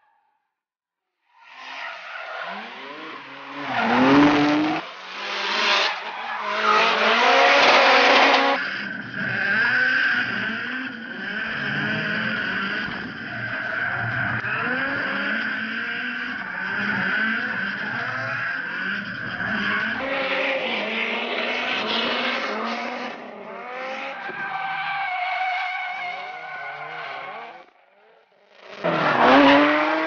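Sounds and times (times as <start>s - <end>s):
car engines revving hard: 2.4s - 24.5s, 28.5s - 30.0s.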